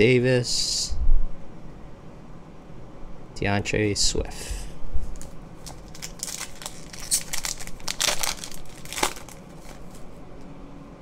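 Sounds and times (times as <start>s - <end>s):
foil wrappers crinkling: 5.1s - 10.1s.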